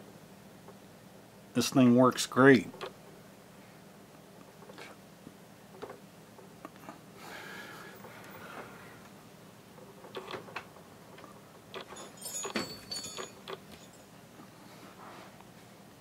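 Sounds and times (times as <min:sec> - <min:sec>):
metallic jingle: 0:11.9 - 0:14.2.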